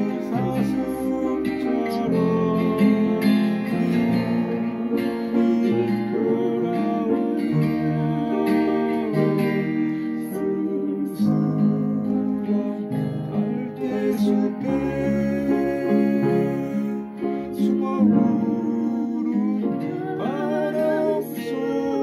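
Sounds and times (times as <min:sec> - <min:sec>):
acoustic guitar: 0:00.0 - 0:22.0
piano: 0:00.0 - 0:22.0.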